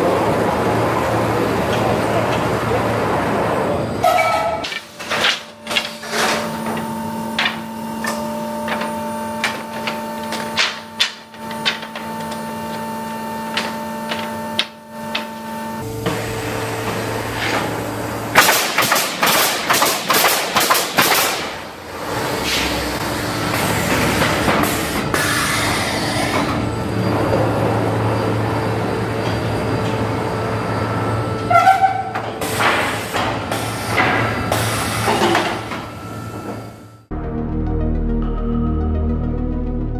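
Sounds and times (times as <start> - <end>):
machine hum: 0.0 - 39.9
sharp nailing shots: 18.4 - 21.6.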